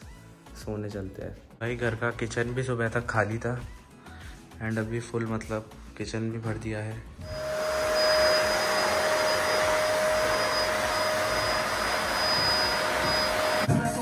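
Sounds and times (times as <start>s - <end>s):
vacuum cleaner running: 7.2s - 13.8s.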